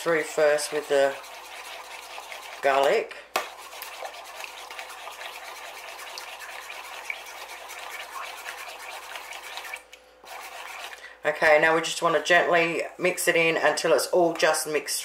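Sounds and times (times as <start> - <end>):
metal spoon stirring in bowl: 0.0 - 11.0.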